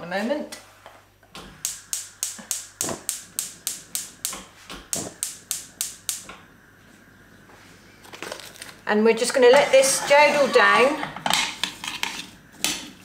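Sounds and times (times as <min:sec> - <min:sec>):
gas hob igniter clicking: 0:01.6 - 0:06.4.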